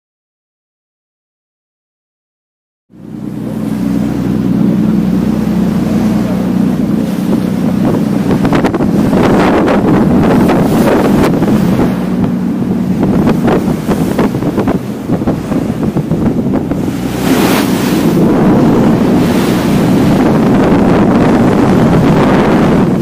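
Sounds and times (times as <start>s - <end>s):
low engine drone: 2.9s - 23.0s
water rushing along hull: 2.9s - 23.0s
wind buffeting microphone: 3.0s - 23.0s.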